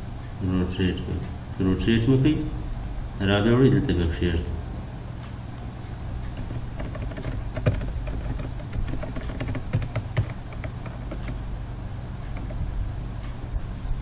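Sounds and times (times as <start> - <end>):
steady low hum: 0.0 - 14.0
computer mouse and keyboard clicks: 6.2 - 11.5, 12.2 - 12.7.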